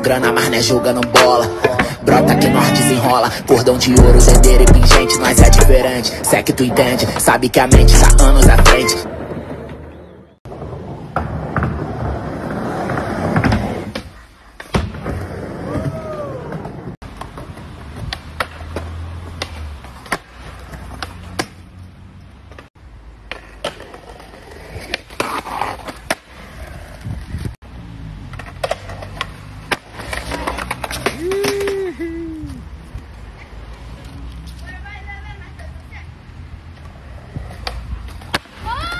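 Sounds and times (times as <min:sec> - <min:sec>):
skateboard wheels rolling on concrete: 0:00.0 - 0:38.9
skateboard scraping stone ledge: 0:05.1 - 0:07.7, 0:08.3 - 0:21.6, 0:22.5 - 0:27.6, 0:28.3 - 0:31.8
skateboard tail clacks: 0:28.3 - 0:31.9.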